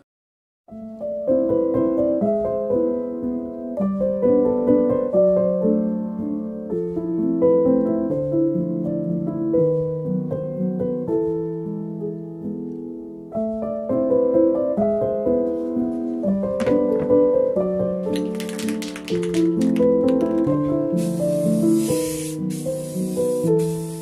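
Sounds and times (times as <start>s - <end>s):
piano music: 0.7s - 24.0s
spray can hissing: 18.2s - 24.0s.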